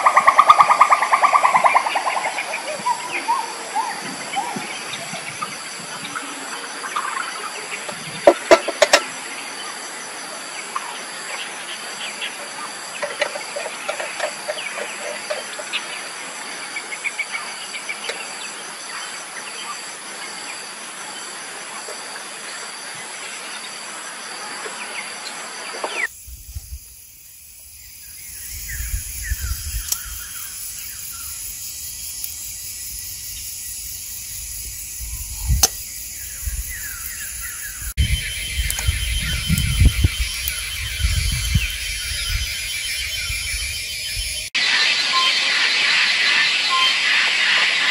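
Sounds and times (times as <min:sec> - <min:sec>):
high-pitched drone: 0:37.6 - 0:45.5.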